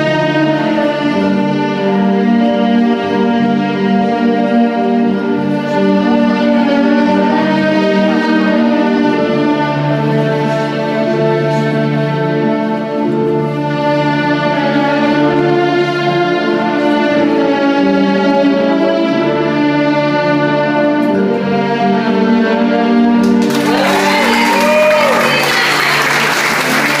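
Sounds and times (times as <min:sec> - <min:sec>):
orchestral waltz music: 0:00.0 - 0:27.0
audience applause: 0:23.2 - 0:27.0
whooping cheers: 0:23.5 - 0:27.0.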